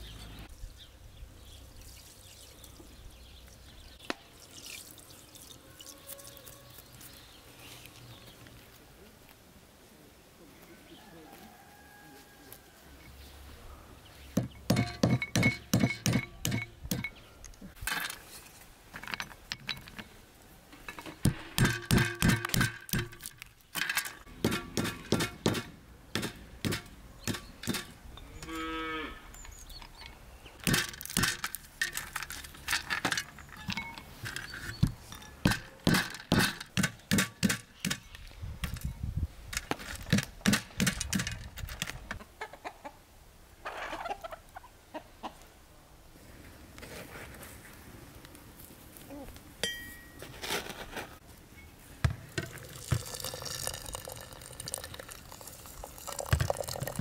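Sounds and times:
cow mooing: 28.3s - 29.3s
walnut shells cracking: 30.6s - 33.7s.

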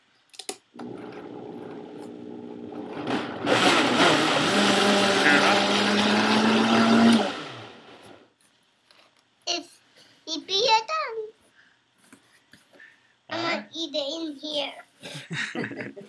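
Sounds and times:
blender running: 0.8s - 8.2s.

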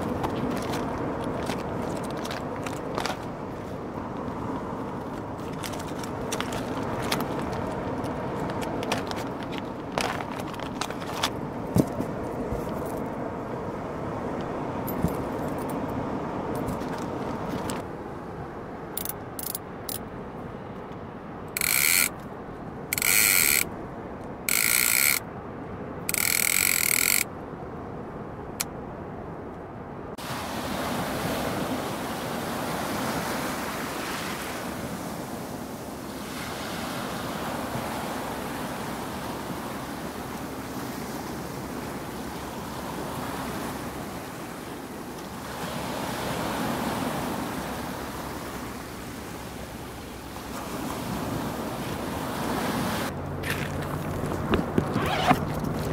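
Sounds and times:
wind: 0.0s - 55.9s
gear rustling and clicking: 5.4s - 12.0s, 21.6s - 22.2s, 22.9s - 23.7s, 24.5s - 25.2s, 26.1s - 27.2s, 53.4s - 55.9s
fishing reel clicker buzzing: 21.6s - 22.2s, 22.9s - 23.7s, 24.5s - 25.2s, 26.1s - 27.3s.

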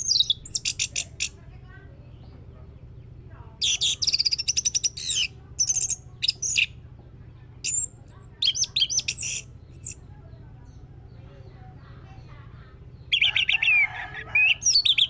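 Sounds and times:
thrush singing: 7.6s - 15.0s.

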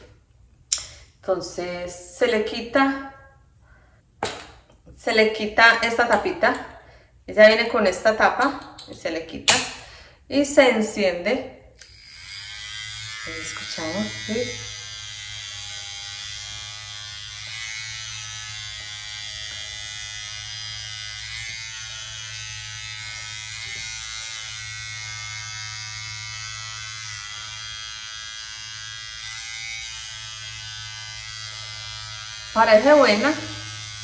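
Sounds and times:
facial massager buzzing: 11.8s - 34.0s.

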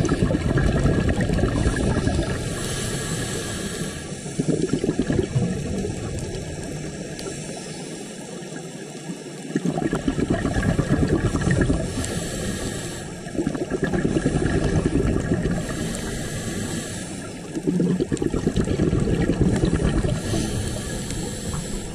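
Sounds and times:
exhaled bubbles rumbling underwater: 0.0s - 7.7s, 8.6s - 21.9s
regulator inhalation hiss: 2.4s - 4.7s, 7.2s - 8.6s, 11.8s - 13.4s, 15.6s - 17.7s, 20.0s - 21.9s.

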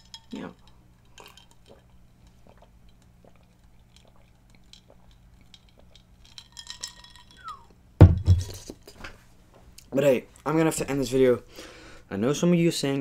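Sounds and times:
mouth sounds and swallowing: 1.2s - 6.1s.

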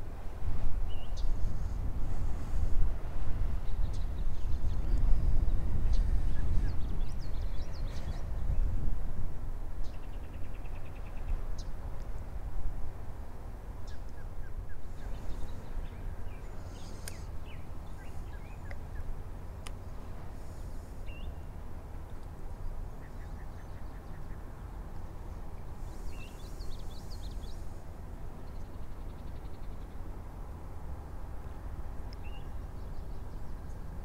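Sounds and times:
birds chirping: 13.9s - 19.1s, 25.7s - 27.8s
faint click: 16.7s - 17.3s, 18.6s - 18.8s, 19.6s - 19.8s, 32.1s - 32.3s.

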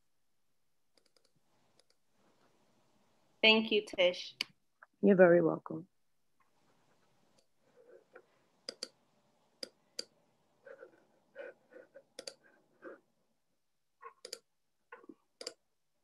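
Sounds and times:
faint clicks: 12.2s - 12.4s.

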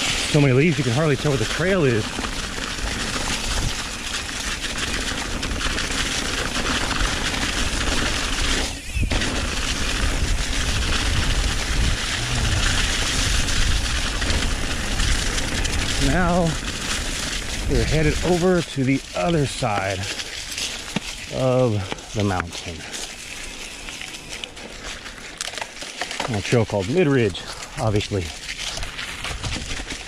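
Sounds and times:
tyres crunching through dry leaves: 0.0s - 30.0s
wind rushing over camera: 4.6s - 18.6s.

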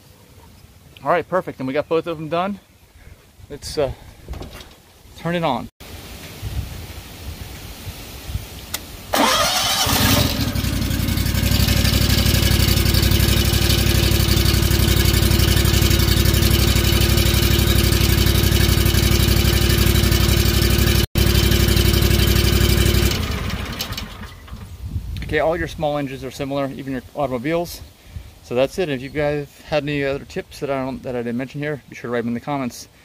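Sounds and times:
small engine starting and running: 9.1s - 24.7s.

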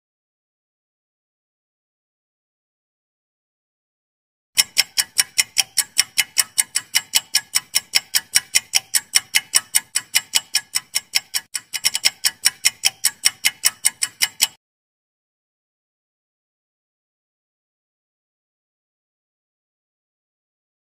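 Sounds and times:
clock ticking: 4.6s - 14.6s.

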